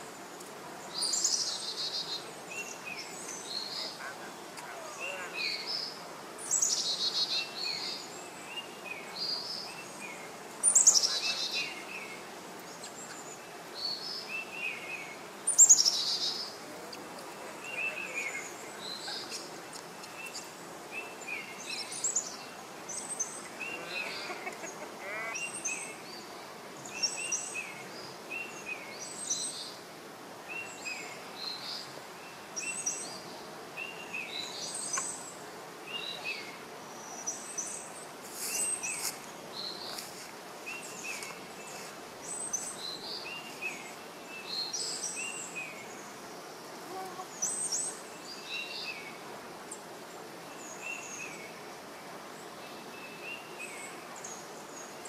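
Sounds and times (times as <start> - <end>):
birds chirping: 0.0 - 29.8.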